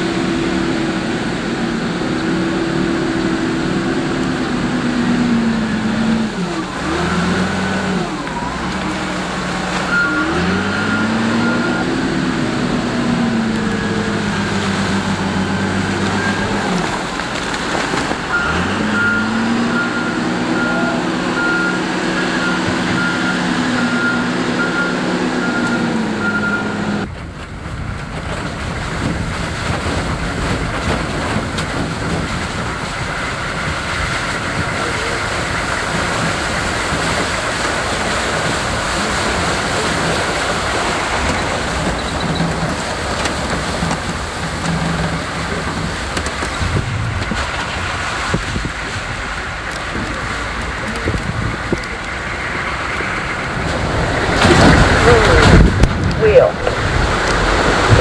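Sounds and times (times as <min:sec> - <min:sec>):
vehicle driving on wet dirt road: 0:00.0 - 0:58.0
wheel loader engine revving: 0:00.0 - 0:58.0
reversing alarm beeping: 0:09.8 - 0:12.3, 0:18.3 - 0:27.1.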